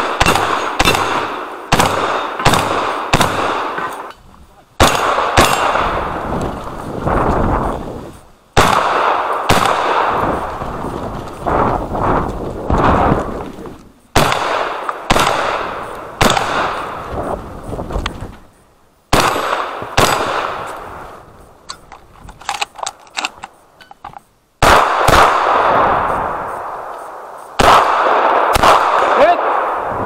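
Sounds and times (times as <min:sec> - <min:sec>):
shotgun shots with echo: 0:00.0 - 0:04.1, 0:04.8 - 0:06.2, 0:08.6 - 0:10.4, 0:14.2 - 0:17.0, 0:19.1 - 0:20.7, 0:24.6 - 0:26.7, 0:27.6 - 0:29.9
shotgun reloading clicks: 0:21.7 - 0:24.2.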